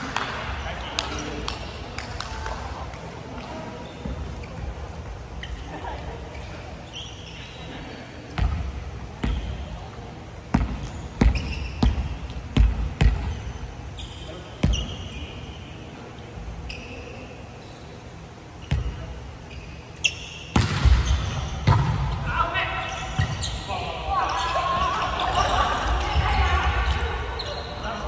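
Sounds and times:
shoe squeaks: 3.8s - 8.1s, 10.8s - 12.3s, 13.0s - 21.8s, 22.8s - 28.0s
volleyball thumping: 20.5s - 22.2s.

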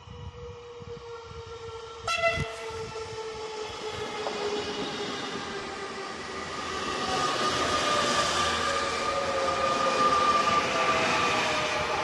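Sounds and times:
electric train whine: 0.0s - 12.0s
train rolling noise: 0.0s - 12.0s
train horn blast: 2.0s - 2.7s.

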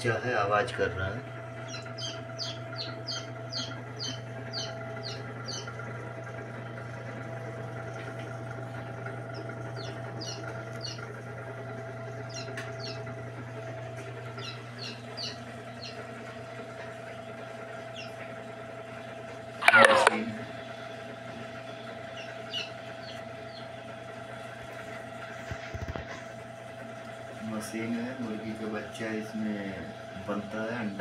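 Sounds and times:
steady hum: 0.0s - 31.0s
chick peeping: 1.6s - 5.9s, 9.3s - 11.1s, 12.3s - 13.1s, 14.4s - 17.0s, 17.9s - 18.3s, 21.7s - 24.4s.

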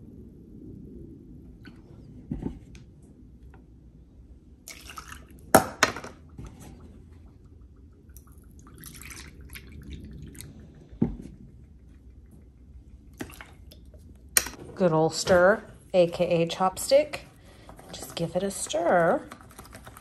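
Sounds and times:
milk pouring into plastic container: 6.3s - 11.3s.

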